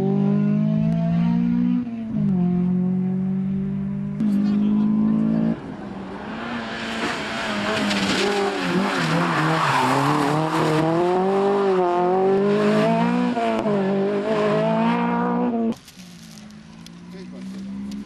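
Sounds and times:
car engine revving hard: 0:06.2 - 0:15.8.

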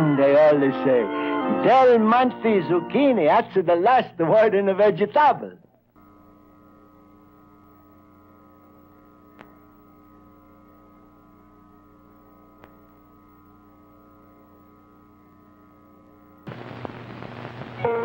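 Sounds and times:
electrical hum: 0:00.0 - 0:18.0
faint clicks: 0:09.3 - 0:09.6, 0:12.6 - 0:13.0.

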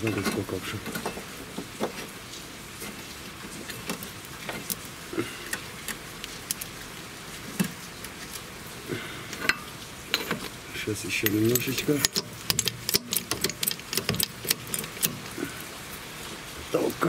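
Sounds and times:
light metallic clicks and knocks: 0:00.0 - 0:02.2, 0:09.3 - 0:15.3
steady hiss: 0:00.0 - 0:17.0.

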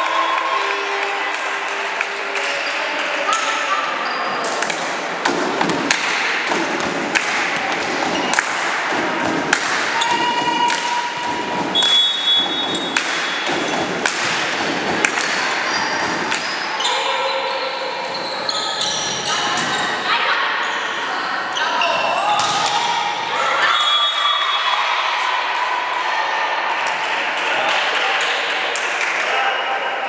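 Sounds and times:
volleyball thumps in a hall: 0:00.0 - 0:29.8
shoe squeaks: 0:10.0 - 0:13.9, 0:15.6 - 0:22.2.

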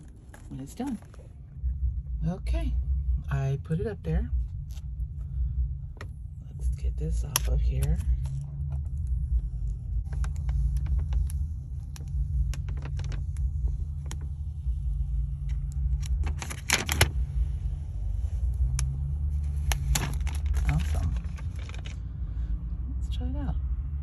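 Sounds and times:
steady low hum: 0:00.0 - 0:24.0
plastic film peeling crinkles: 0:10.1 - 0:14.3, 0:18.6 - 0:22.0.

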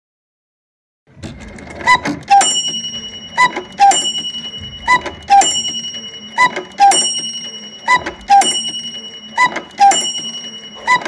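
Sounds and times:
cuckoo clock calls: 0:01.8 - 0:11.0
small bell ringing: 0:02.4 - 0:11.0.

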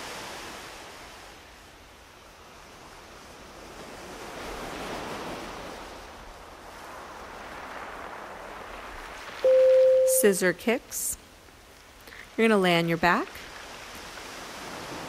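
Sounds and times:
small waves washing onto beach: 0:00.0 - 0:10.3, 0:11.2 - 0:15.0.

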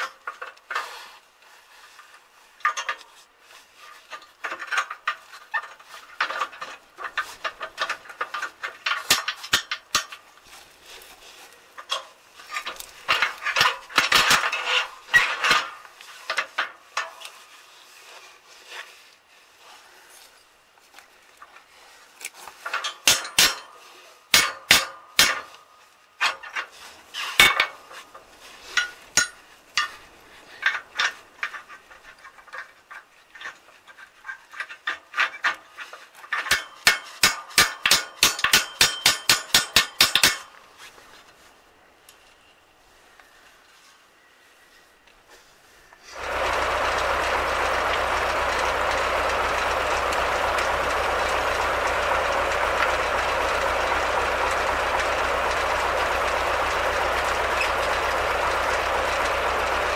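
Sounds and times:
steel parts clanking: 0:22.6 - 0:23.8, 0:28.7 - 0:32.7, 0:36.2 - 0:40.5, 0:46.1 - 0:59.9.

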